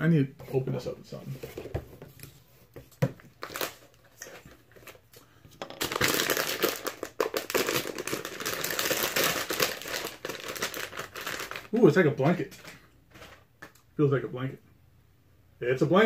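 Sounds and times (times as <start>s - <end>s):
plastic bag crinkling: 5.6s - 13.4s.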